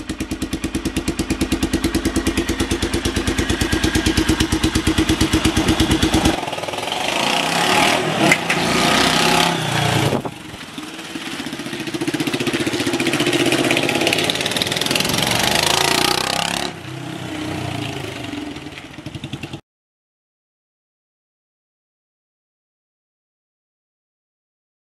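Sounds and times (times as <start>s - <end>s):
motorcycle engine idling and revving: 0.0s - 19.6s.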